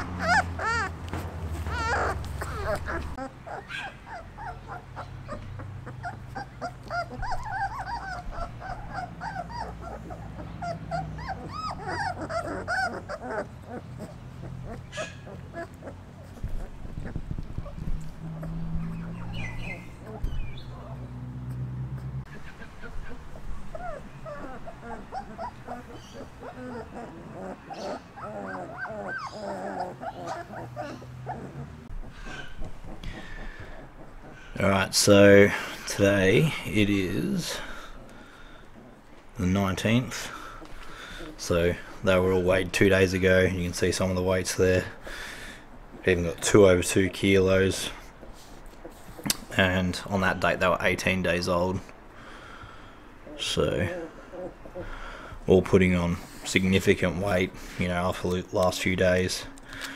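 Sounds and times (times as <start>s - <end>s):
puppies whimpering and squeaking: 0.0s - 21.0s, 21.6s - 45.0s, 53.2s - 55.3s.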